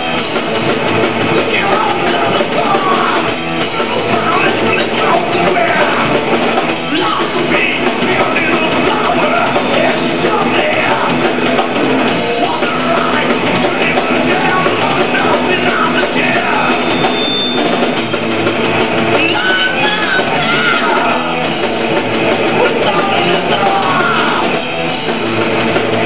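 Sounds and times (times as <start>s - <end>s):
thrash metal band playing live: 0.0s - 26.0s
person yelling vocals: 6.9s - 11.3s, 19.2s - 21.5s, 22.6s - 24.6s.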